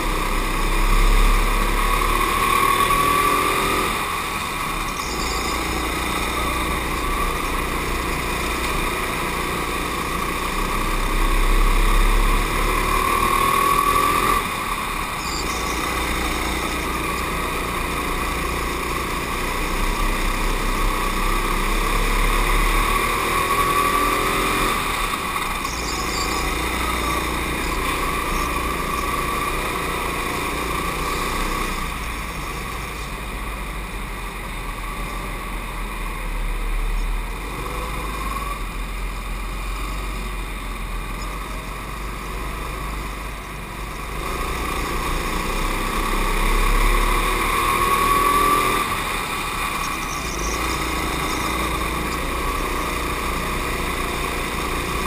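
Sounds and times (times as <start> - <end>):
go-kart engine accelerating: 0.0 - 55.0.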